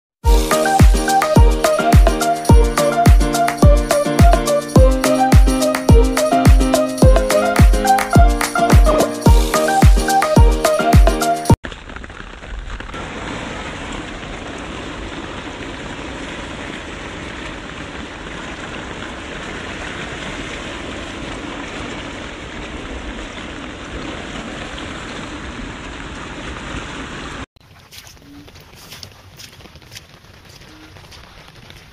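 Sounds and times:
flooded creek rushing: 13.0 - 31.9.

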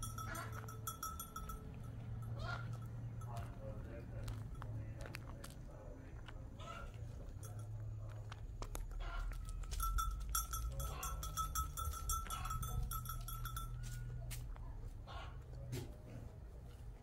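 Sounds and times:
goat bell jingling: 0.0 - 5.6, 6.6 - 14.6.

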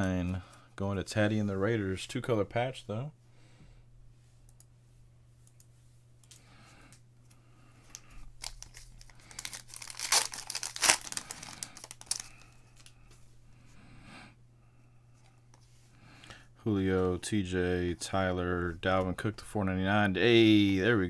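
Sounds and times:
cards rustling: 7.8 - 13.0
wrapper tearing and crinkling: 8.4 - 12.9.

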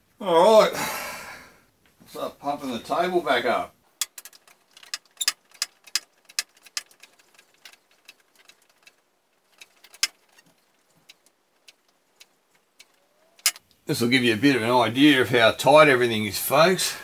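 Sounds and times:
jack pedal metallic clicks: 9.6 - 13.8.

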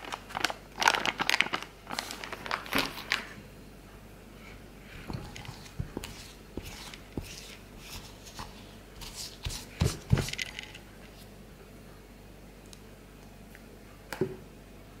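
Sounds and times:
spoon scraping ceramic bowl: 5.2 - 10.8.

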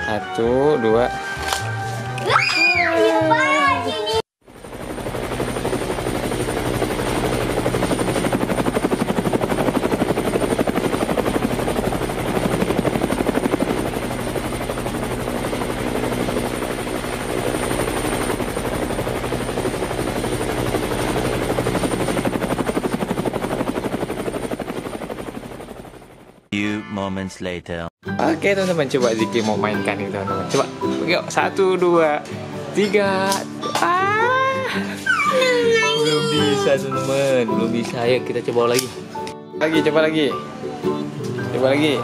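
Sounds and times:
helicopter rotor chop: 4.4 - 26.5.

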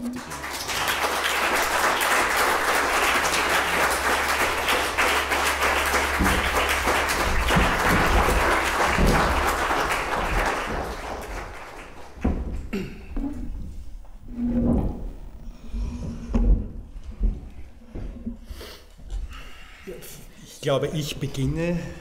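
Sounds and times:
audience applauding: 0.0 - 12.8
knocks: 5.3 - 10.1, 12.1 - 13.2.

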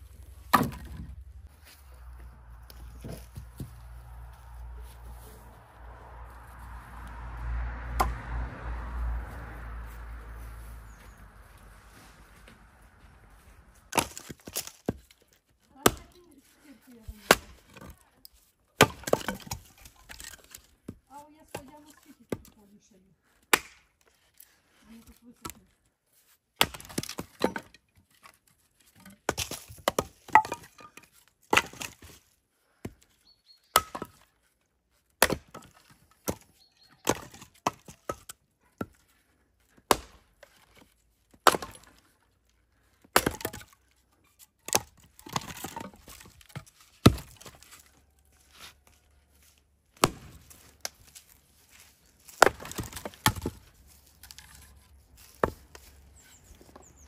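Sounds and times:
axe chopping firewood: 0.4 - 1.2, 7.9 - 8.3, 13.9 - 16.5, 17.1 - 18.0, 18.8 - 22.6, 23.4 - 24.1, 26.6 - 33.0, 33.7 - 34.3, 34.9 - 42.3, 43.0 - 56.9.

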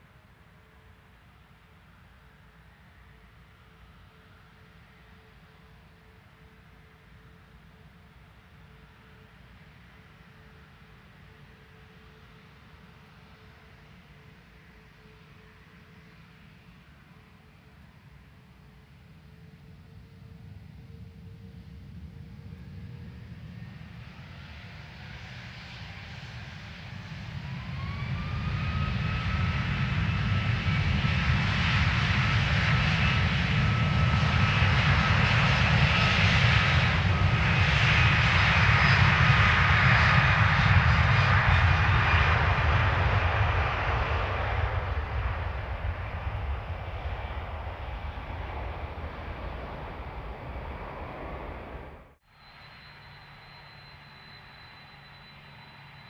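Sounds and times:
airliner jet roar: 19.6 - 56.0
jet engines spooling up: 23.5 - 56.0.

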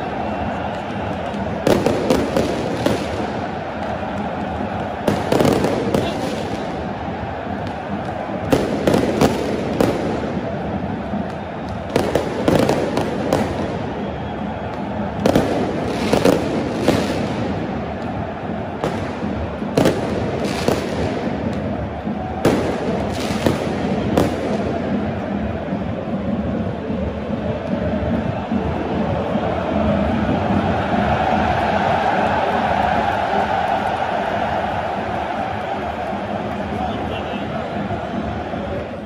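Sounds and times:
large crowd din: 0.0 - 39.0
fireworks banging: 22.4 - 25.0.

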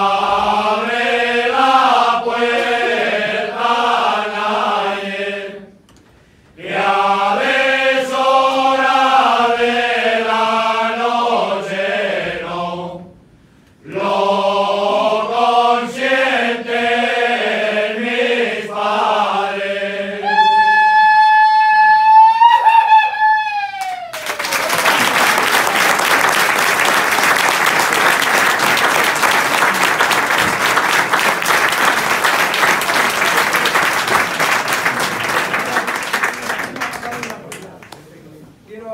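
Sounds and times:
men's choir singing a cappella: 0.0 - 5.8, 6.6 - 13.2, 13.8 - 20.7
audience applauding: 23.8 - 38.0.

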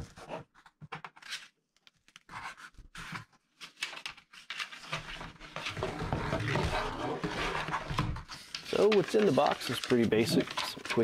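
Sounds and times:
cardboard box rustling and scraping: 5.0 - 11.0.

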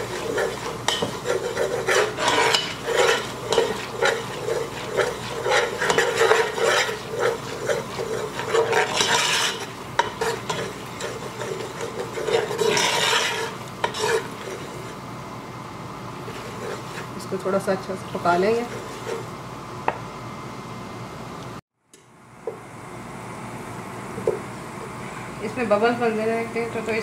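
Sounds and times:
spatula stirring and scraping pot: 0.0 - 15.1, 16.1 - 19.4
roux sizzling: 0.0 - 19.9.

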